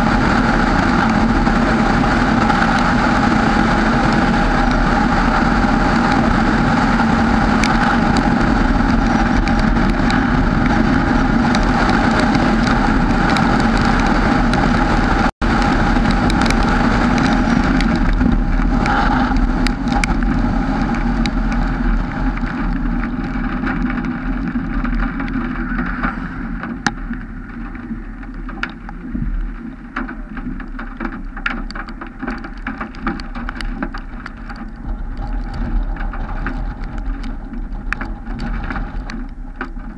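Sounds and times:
engine and road noise drone: 0.0 - 39.9
raindrops ticking: 0.0 - 39.9.

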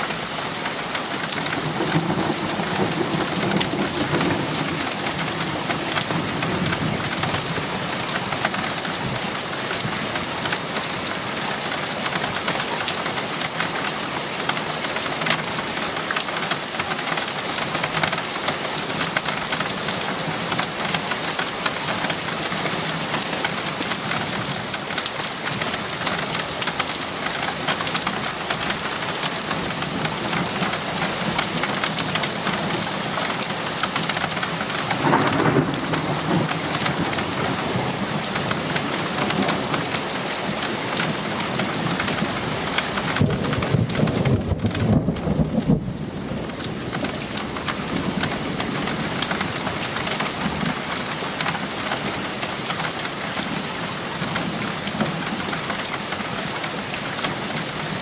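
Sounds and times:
heavy rain: 0.0 - 58.0
low thunder rumble: 35.0 - 38.2, 43.2 - 46.9.

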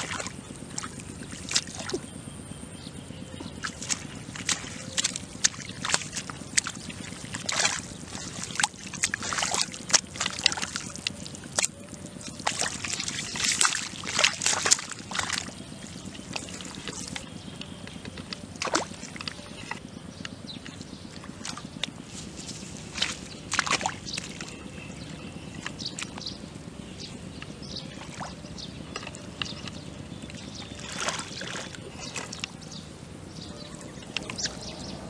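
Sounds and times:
hands splashing in muddy water: 3.4 - 17.3, 18.2 - 19.8, 20.7 - 26.2, 30.2 - 32.6.

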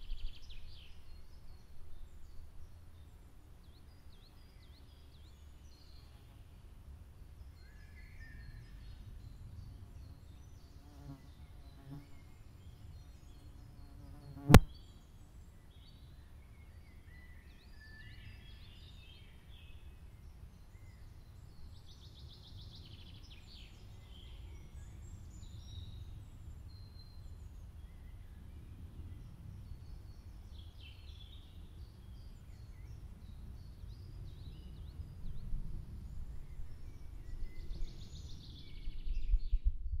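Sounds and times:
insect buzzing: 14.1 - 14.7
sharp click: 14.5 - 14.7.

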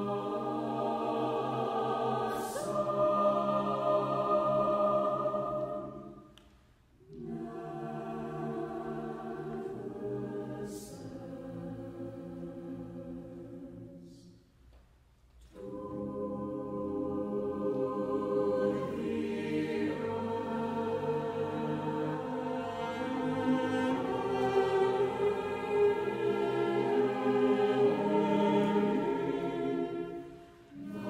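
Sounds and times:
choir singing: 0.0 - 6.4, 7.0 - 14.4, 15.4 - 31.0.

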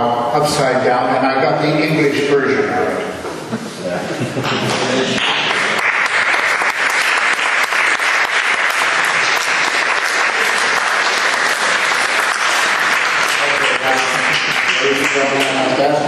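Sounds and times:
audience applauding: 4.4 - 16.0.

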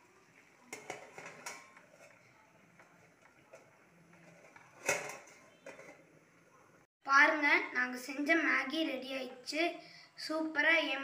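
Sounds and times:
metal spatula scraping pan: 0.5 - 6.2
steel plate clanking on pan: 0.6 - 2.2, 3.5 - 6.1.

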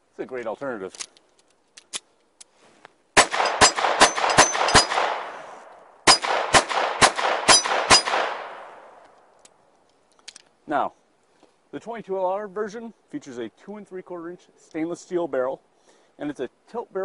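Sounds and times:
pistol shots with echo: 3.2 - 8.9.

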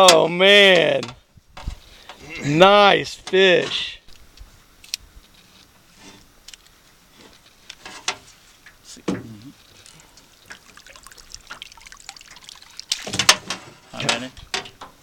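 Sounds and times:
water splashing and dripping: 10.2 - 13.6.

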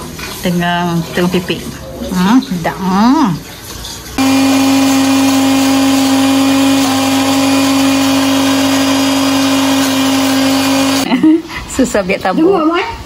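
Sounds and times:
blender motor whirring: 4.2 - 11.1.

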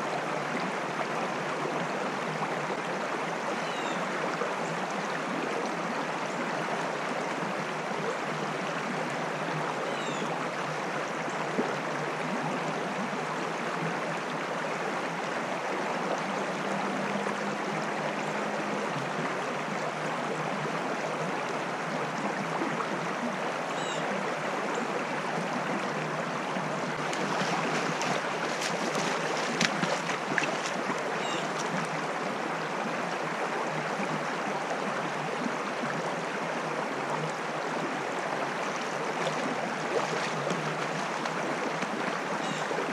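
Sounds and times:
stream rushing over rocks: 0.0 - 42.9
sharp splashes and knocks: 27.0 - 30.8.

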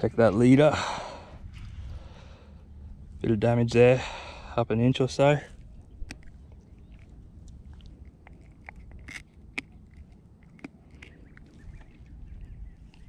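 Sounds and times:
low rumble: 0.0 - 13.0
faint clicks and crackles: 5.4 - 13.0.

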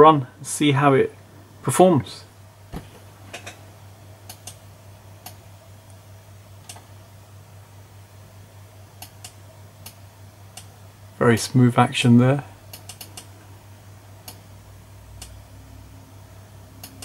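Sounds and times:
steady low hum: 0.0 - 17.0
computer mouse clicking: 4.3 - 4.6, 12.7 - 13.3.

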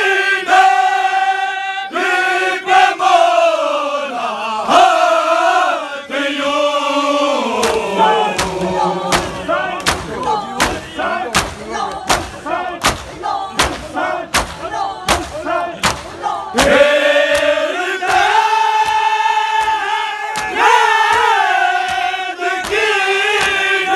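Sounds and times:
men chanting together: 0.0 - 23.9
hands striking chests: 7.6 - 19.0.

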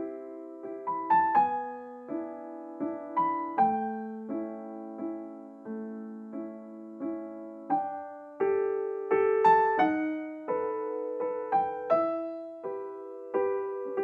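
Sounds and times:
slow gentle piano music: 0.0 - 14.0.

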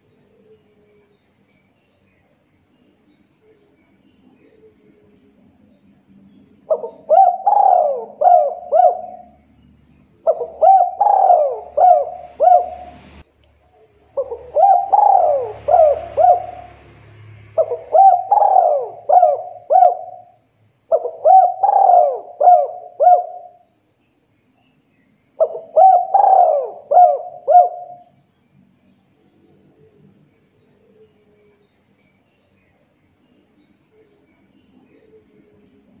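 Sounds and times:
dove cooing: 6.7 - 9.4, 10.2 - 13.2, 14.1 - 23.6, 25.4 - 28.1.

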